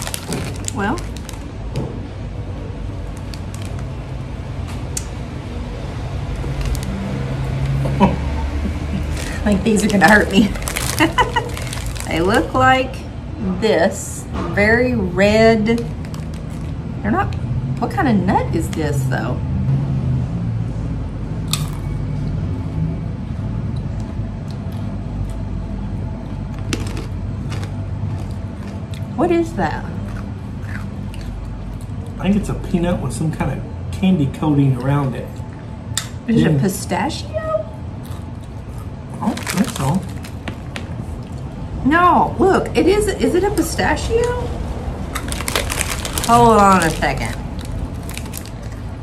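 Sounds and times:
plastic snack bag crinkling: 0.0 - 1.6, 3.0 - 4.0, 6.4 - 7.0, 9.0 - 12.6, 15.8 - 16.9, 26.6 - 28.8, 39.2 - 40.8, 45.1 - 49.0
steady low hum: 0.0 - 49.0.

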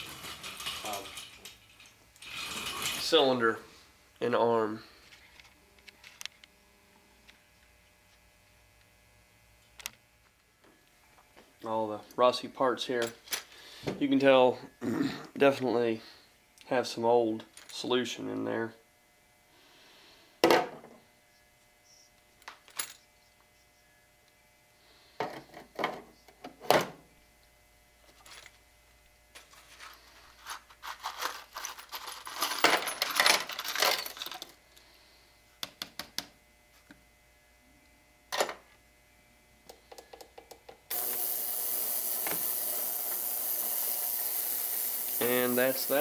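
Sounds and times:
metal parts clinking and rattling: 0.0 - 3.2, 29.4 - 34.6
ultrasonic cleaner hissing: 40.9 - 46.0.

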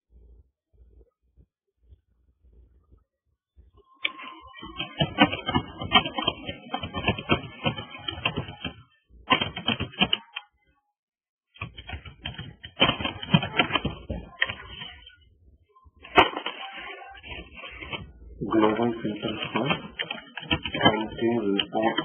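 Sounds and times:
keyboard typing: 3.8 - 10.5, 11.6 - 15.2, 16.0 - 22.0.

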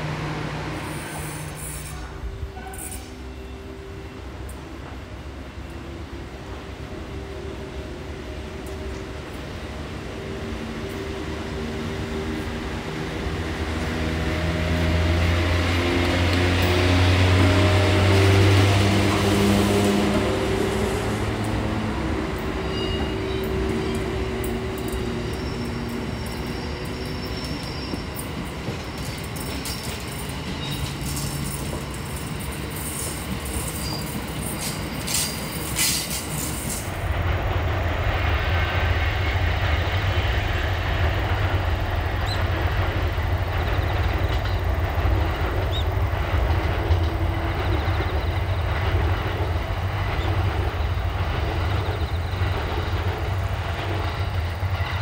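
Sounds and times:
train humming tones: 0.0 - 55.0
train low rumble: 0.0 - 55.0
sharp clicks and squeals: 22.8 - 37.0.

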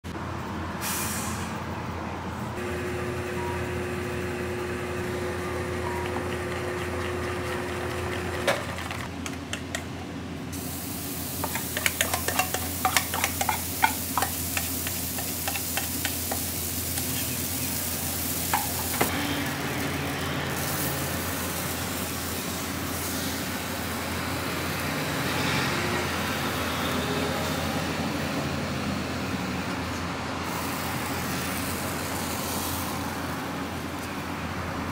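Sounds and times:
steady background hum: 2.0 - 19.1
batter sizzling on griddle: 10.6 - 25.4, 30.5 - 34.1
whisk in steel bowl: 11.4 - 16.4.

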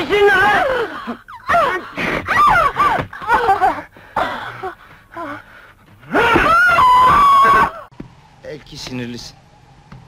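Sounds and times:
person crying out and gasping: 0.2 - 5.4.

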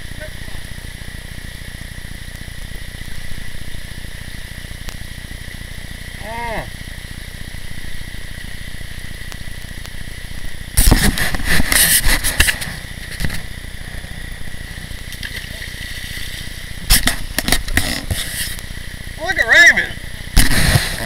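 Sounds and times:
loud rough noise bursts: 0.0 - 21.0
rocky river running: 11.2 - 21.0.

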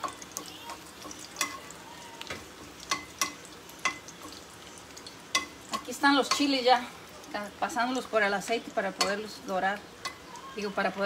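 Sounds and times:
tongs clicking against pan: 0.0 - 4.4, 5.0 - 6.6, 8.8 - 10.5
chiles sizzling in hot oil: 0.0 - 11.0.

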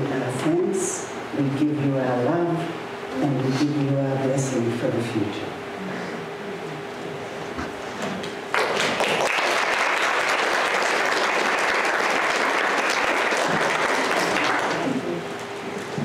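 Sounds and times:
congregation applauding: 8.5 - 15.1.

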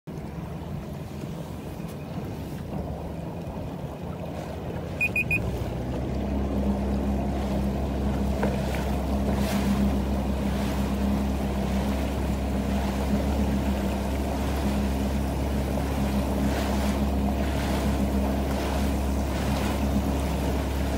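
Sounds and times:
jet ski engine humming: 0.1 - 20.9
quick electronic beeps: 5.0 - 5.5.

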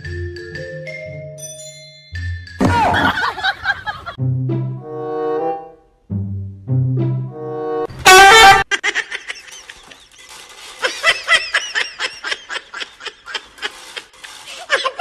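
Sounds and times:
person giggling: 2.6 - 4.2
horn blast: 7.3 - 8.7.

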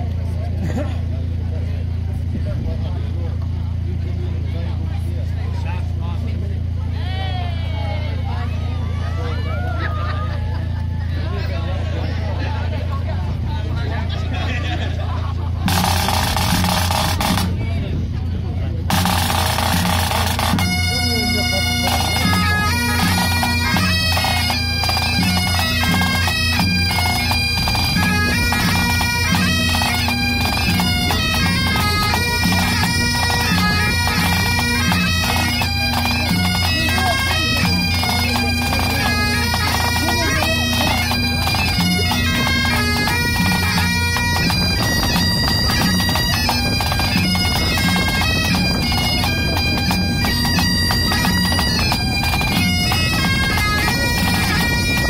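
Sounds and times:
drums beating: 15.0 - 17.6, 18.9 - 55.0
bagpipes playing a tune: 15.6 - 17.6, 18.8 - 55.0.

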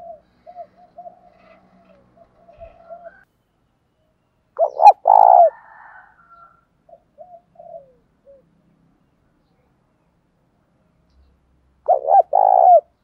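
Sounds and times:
dove cooing: 0.0 - 3.2, 4.6 - 6.2, 6.9 - 8.6, 11.9 - 13.0.

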